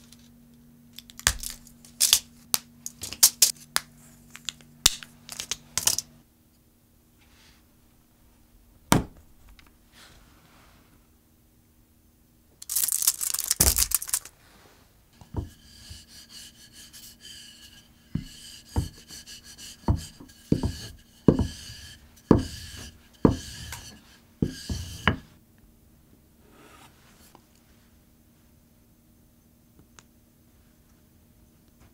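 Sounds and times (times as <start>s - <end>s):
rolling pin knocks: 15.2s - 16.2s, 17.0s - 25.3s
rolling pin rumbling on board: 15.2s - 25.4s.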